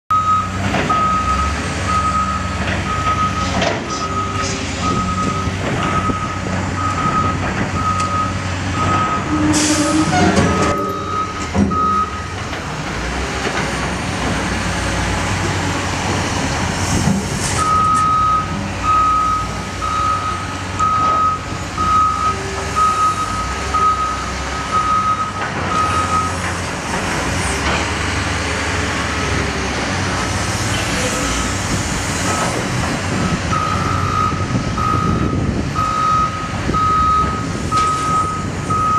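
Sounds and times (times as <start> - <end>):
reversing alarm beeping: 0.1 - 12.4, 17.6 - 26.4, 33.5 - 38.9
diesel engine running: 0.1 - 38.9.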